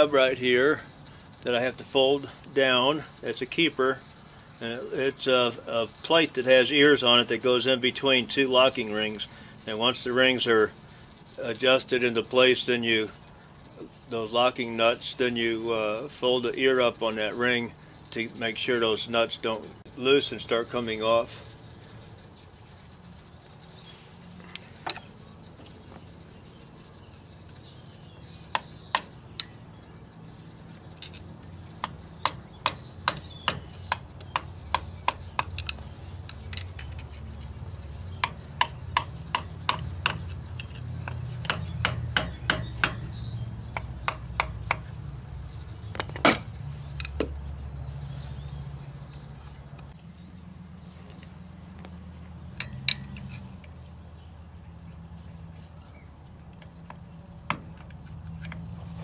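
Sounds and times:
screwdriver tapping metal: 31.0s - 45.0s.

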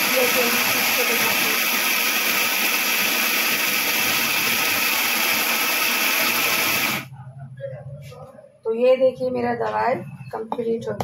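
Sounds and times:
electric mixer grinder running: 0.0s - 7.1s.

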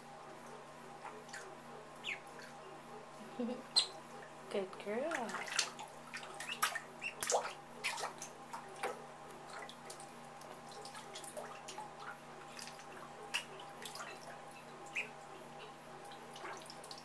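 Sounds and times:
duckling peeping: 1.0s - 2.8s, 3.6s - 4.2s, 6.2s - 8.1s, 12.5s - 16.7s
water splashing in a tub: 4.8s - 17.0s.

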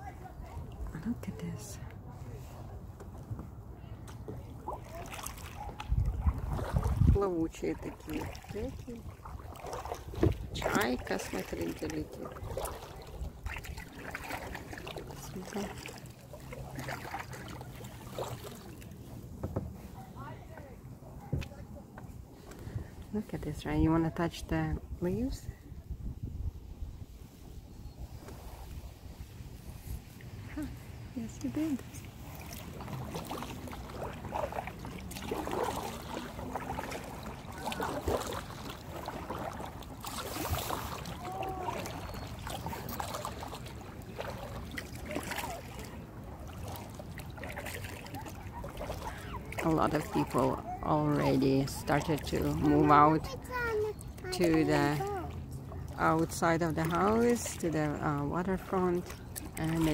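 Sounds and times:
kayak paddle splashing: 0.0s - 59.9s
water noise: 0.0s - 59.9s.

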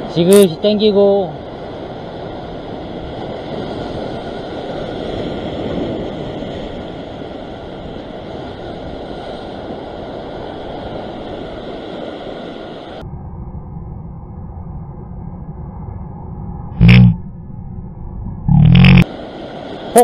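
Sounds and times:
ocean surf breaking on rocks: 0.0s - 13.0s, 19.0s - 20.0s.

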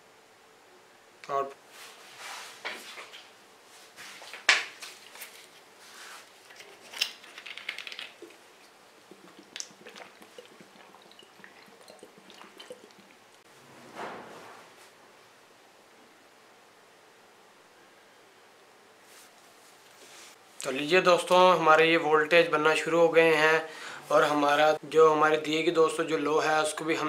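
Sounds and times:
soft rustle: 1.6s - 9.4s, 19.0s - 20.6s
small clicks and knocks: 6.5s - 8.4s.

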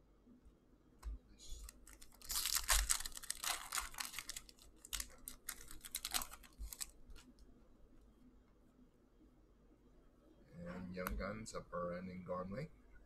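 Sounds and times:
wrapper tearing and crinkling: 1.6s - 7.3s.

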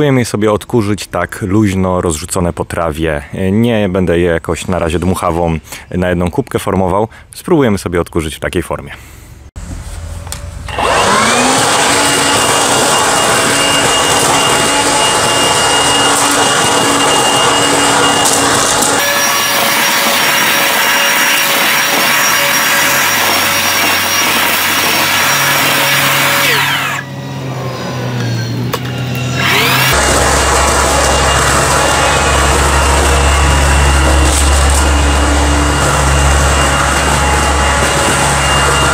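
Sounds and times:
leaf vacuum whine: 9.6s - 38.9s.

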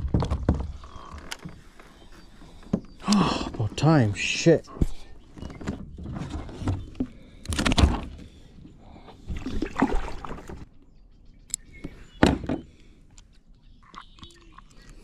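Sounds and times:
bumps and scrapes on kayak hull: 4.8s - 8.3s.

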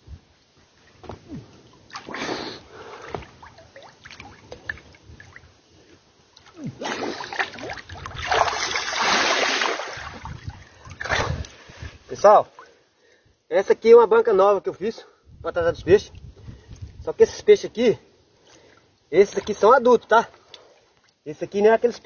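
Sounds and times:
water splashing from swimming: 0.8s - 5.5s, 6.3s - 11.6s.

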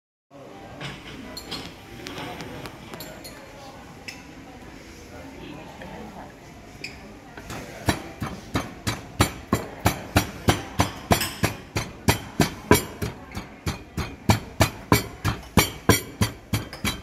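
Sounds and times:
pestle pounding in wooden mortar: 7.5s - 17.0s.

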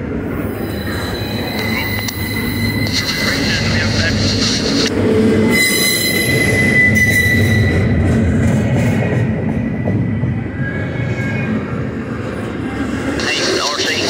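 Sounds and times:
train wheels rumbling on rail: 0.0s - 14.0s
high wheel squeal: 0.5s - 8.0s.

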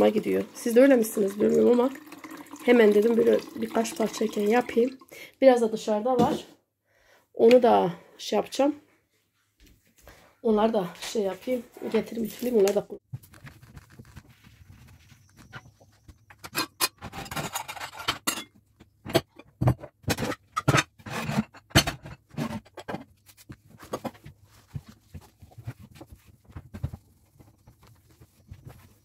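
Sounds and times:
plates and bowls clattering: 16.3s - 23.0s.

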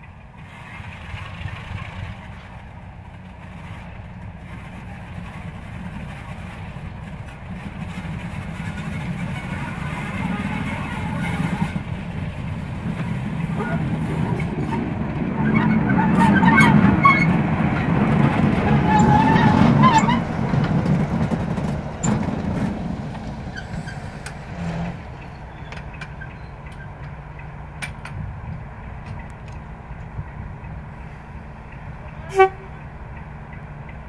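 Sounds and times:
diesel locomotive engine passing: 0.0s - 34.0s.

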